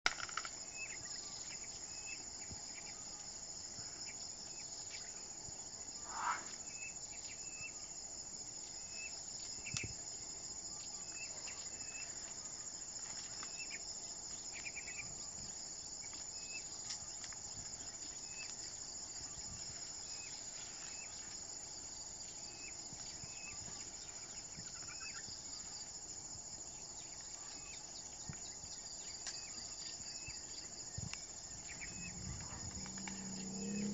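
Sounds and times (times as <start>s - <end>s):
insect chorus trilling: 0.1s - 33.9s
short insect chirps: 5.9s - 8.0s, 26.9s - 33.9s
rising call: 6.0s - 6.9s.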